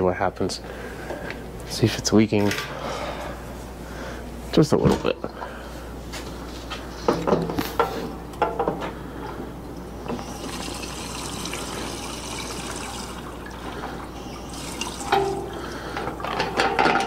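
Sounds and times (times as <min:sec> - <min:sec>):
gasoline pouring into a tank: 0:10.1 - 0:16.3.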